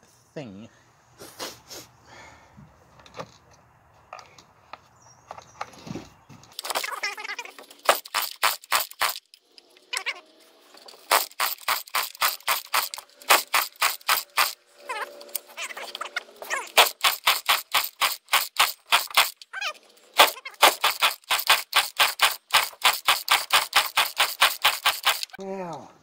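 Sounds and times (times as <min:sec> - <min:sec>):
chainsaw recoil starter pulls: 0:06.5 - 0:25.4
engine turning over pops: 0:07.5 - 0:09.9, 0:10.7 - 0:14.6, 0:15.2 - 0:19.5, 0:20.1 - 0:25.4.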